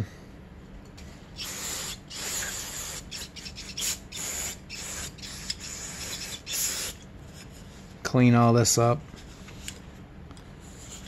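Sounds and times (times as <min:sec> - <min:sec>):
aerosol spray hissing bursts: 0:01.4 - 0:07.0.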